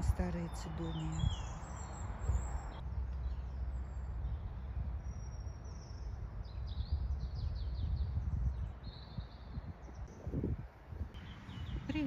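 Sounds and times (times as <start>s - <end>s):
songbird chirping and whistling: 0.4s - 2.8s
low rumble on microphone: 1.0s - 12.0s.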